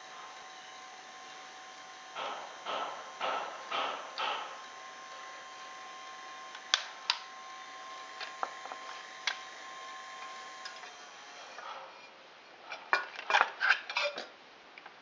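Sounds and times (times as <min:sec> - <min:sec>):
small motor whining: 0:00.0 - 0:11.7.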